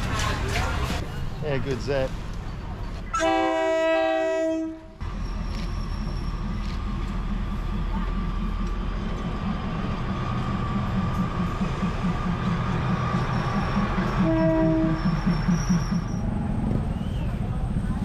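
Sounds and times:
diesel train engine rumble: 0:00.0 - 0:18.0
train horn: 0:03.1 - 0:04.9, 0:14.2 - 0:15.1
low rhythmic pulsing: 0:06.0 - 0:16.7.

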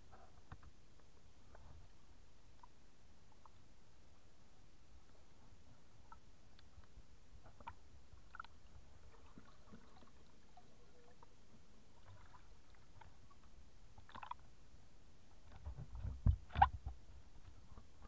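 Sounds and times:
muffled water sloshing: 0:07.5 - 0:14.6.

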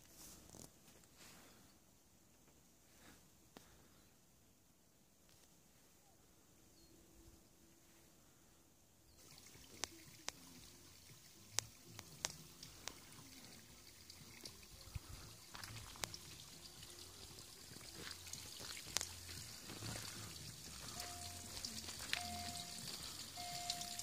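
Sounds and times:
fountain water trickling and splashing: 0:09.1 - 0:24.0.

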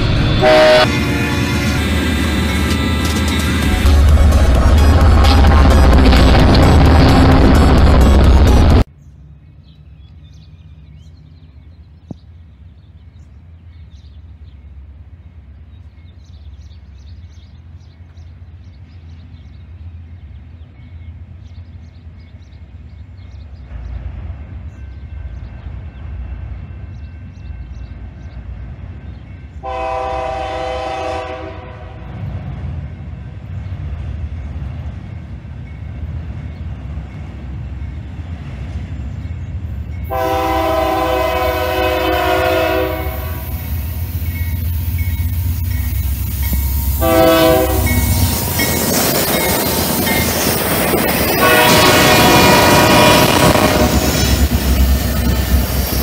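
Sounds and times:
locomotive engine rumble: 0:00.0 - 0:09.3, 0:10.7 - 0:56.0
locomotive air horn blasts: 0:00.3 - 0:03.1, 0:03.7 - 0:08.8, 0:29.6 - 0:32.1, 0:40.1 - 0:44.1, 0:46.5 - 0:48.6, 0:51.3 - 0:54.2.

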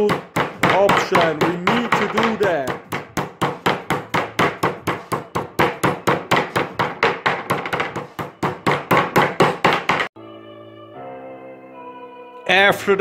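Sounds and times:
mallet pounding meat on board: 0:00.0 - 0:10.1
background music: 0:00.0 - 0:13.0.

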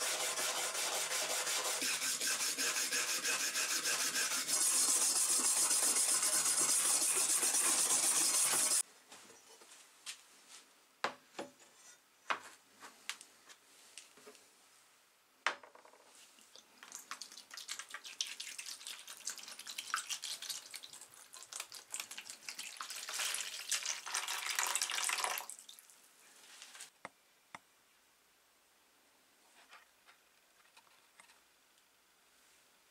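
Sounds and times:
wire brush scrubbing metal: 0:00.0 - 0:08.8
liquid pouring into plastic tray: 0:16.8 - 0:25.8.

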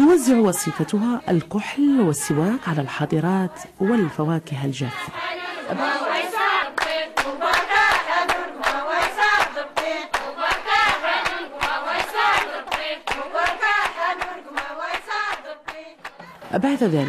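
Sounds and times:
women singing together: 0:00.0 - 0:17.0
hand claps: 0:06.5 - 0:16.5.

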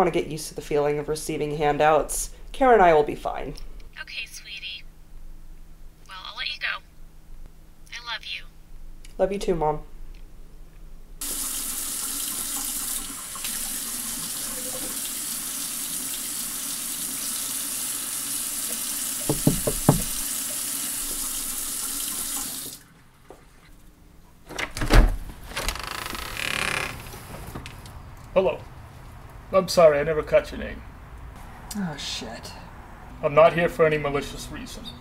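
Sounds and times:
water running from a tap: 0:11.2 - 0:22.9
heavy thump: 0:19.3 - 0:20.2.

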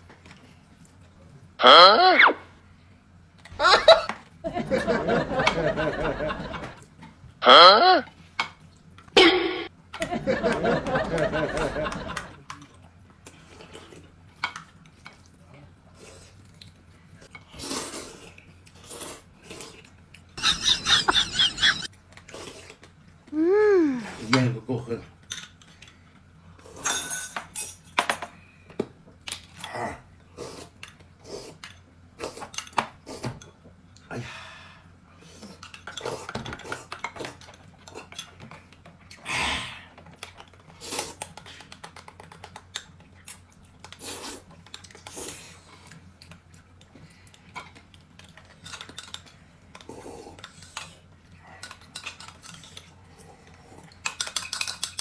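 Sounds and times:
utensils clinking against dishes: 0:26.6 - 0:28.4, 0:51.6 - 0:52.9, 0:53.8 - 0:55.0.

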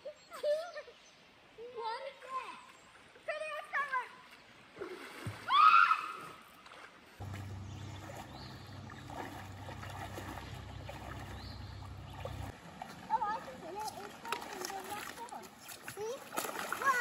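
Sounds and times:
faint water splashing: 0:01.4 - 0:17.0
girl squealing: 0:05.5 - 0:06.2
low rumble: 0:07.2 - 0:12.5.

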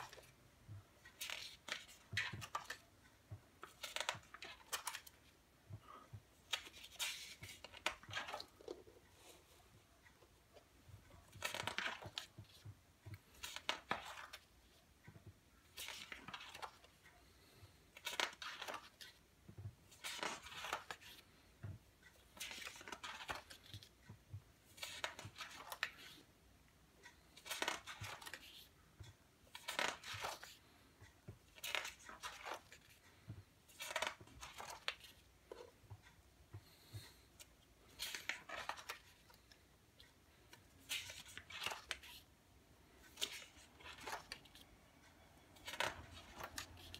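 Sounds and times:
paper pages turning: 0:00.0 - 0:00.4, 0:01.0 - 0:02.9, 0:03.6 - 0:05.3, 0:06.4 - 0:09.5, 0:11.2 - 0:14.5, 0:15.6 - 0:17.0, 0:17.9 - 0:19.2, 0:19.9 - 0:21.3, 0:22.2 - 0:23.9, 0:24.7 - 0:26.2, 0:27.1 - 0:28.7, 0:29.4 - 0:30.6, 0:31.5 - 0:35.7, 0:37.8 - 0:39.6, 0:40.3 - 0:42.3, 0:43.0 - 0:44.7, 0:45.6 - 0:46.9.

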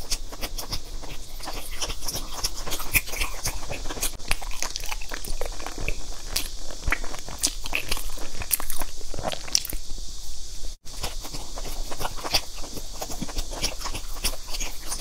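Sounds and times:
chewing cake: 0:00.0 - 0:09.9, 0:10.8 - 0:15.0
mouth smacks: 0:00.1 - 0:09.9.

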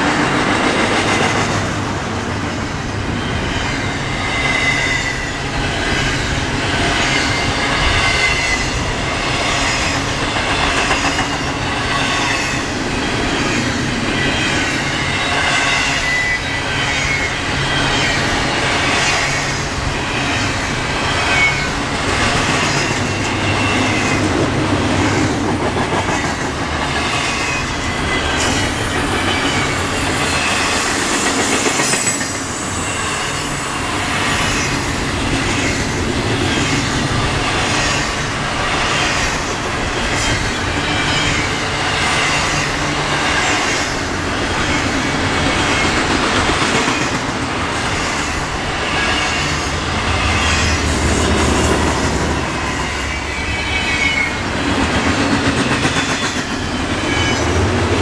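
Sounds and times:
train wheels clattering over rails: 0:00.0 - 0:58.0
high-pitched wheel squeal: 0:28.0 - 0:33.8.

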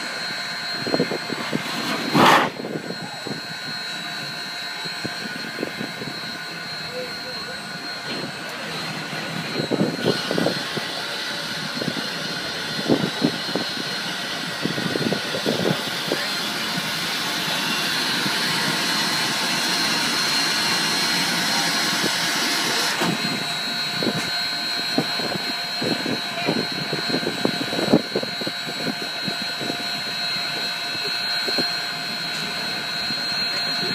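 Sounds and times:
steam hissing: 0:01.4 - 0:02.8.

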